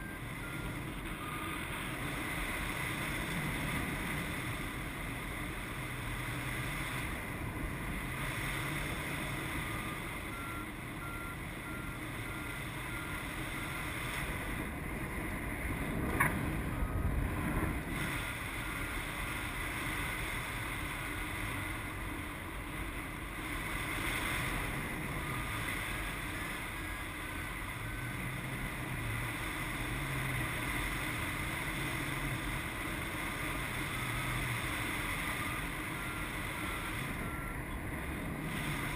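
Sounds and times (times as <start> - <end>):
faint high variometer beeps: 0.0 - 3.3, 8.9 - 14.4, 24.2 - 38.9.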